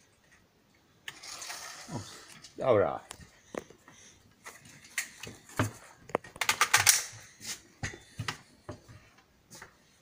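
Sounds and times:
rifle handling clicks and knocks: 4.5s - 7.3s.

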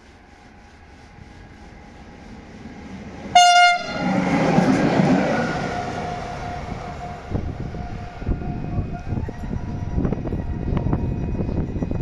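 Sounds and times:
train wheels rumbling on rails: 0.0s - 12.0s
locomotive horn blast: 3.3s - 4.3s, 5.3s - 9.2s.

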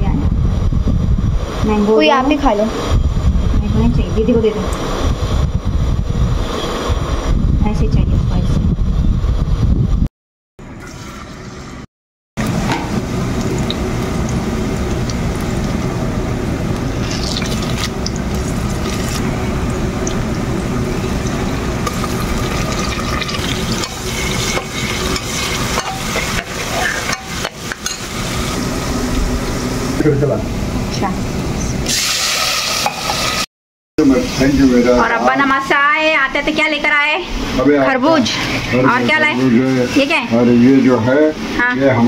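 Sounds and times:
onion sizzling in hot oil: 12.4s - 30.0s, 31.8s - 33.5s.

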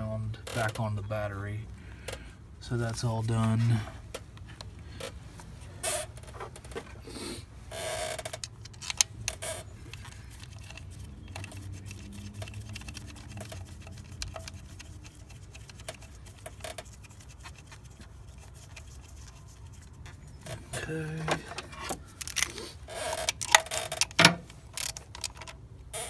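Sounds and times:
small clicks and rustles: 8.1s - 20.7s, 21.4s - 25.6s.

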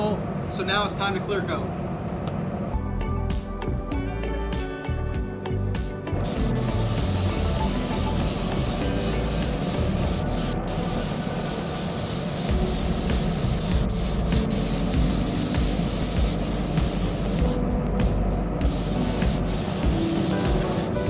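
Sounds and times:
spray gun hissing: 6.2s - 17.6s, 18.6s - 21.0s.

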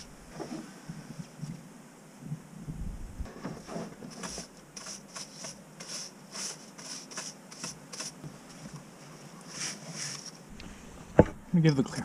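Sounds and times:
brush scrubbing metal: 3.6s - 10.4s.

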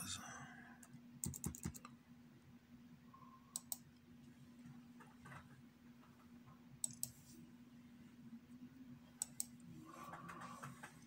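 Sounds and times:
faint steady low hum: 0.0s - 11.0s
computer keyboard and mouse clicks: 1.2s - 1.9s, 3.5s - 3.8s, 6.8s - 7.2s, 9.2s - 11.0s.

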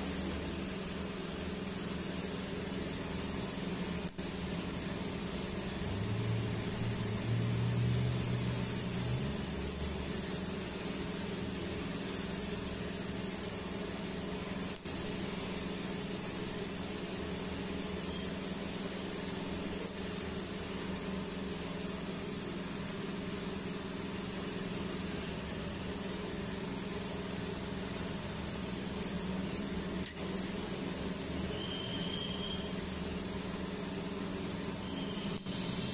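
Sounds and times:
welding arc hissing: 0.0s - 35.9s.

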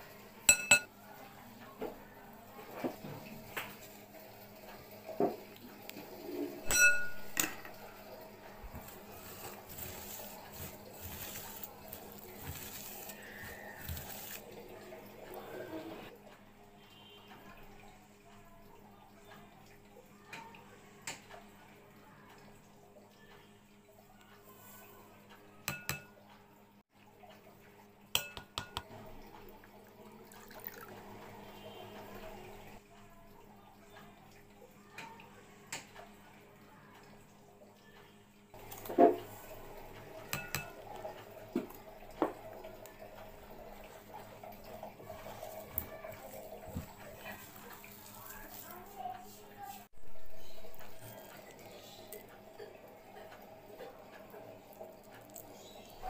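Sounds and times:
spoons clinking on glass bowl: 0.5s - 0.9s, 6.7s - 7.7s, 25.7s - 26.2s, 28.2s - 28.8s, 40.3s - 40.8s
hand squishing sliced onions: 8.7s - 14.5s, 45.2s - 52.4s.

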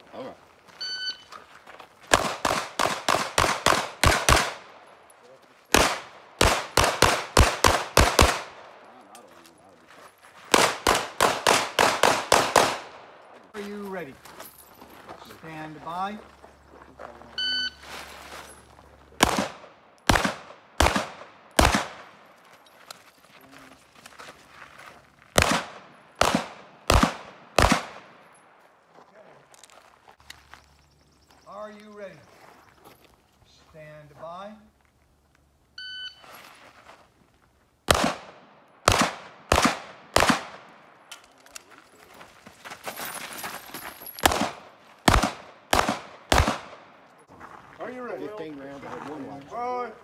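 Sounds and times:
shot timer beep: 0.8s - 1.3s, 35.8s - 36.2s
pistol shots: 2.1s - 4.8s, 5.7s - 8.8s, 10.5s - 13.2s, 19.2s - 22.2s, 25.4s - 28.3s, 37.9s - 41.0s, 44.2s - 47.0s.

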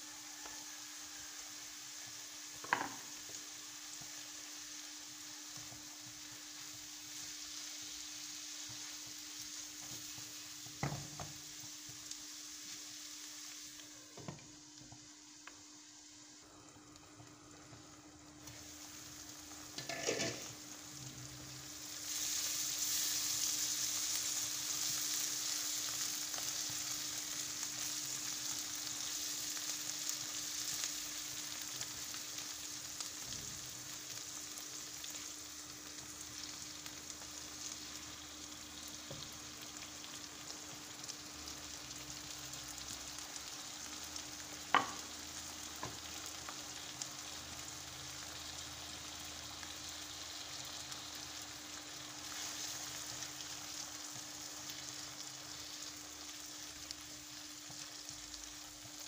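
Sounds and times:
vegetables sizzling in oil: 0.0s - 59.0s
stirring in a pan: 18.4s - 20.6s.

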